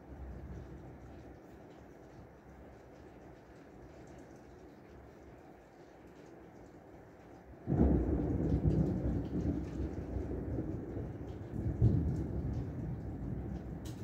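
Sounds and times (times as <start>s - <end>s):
heavy rain: 0.0s - 14.0s
thunder rumbling: 7.7s - 14.0s.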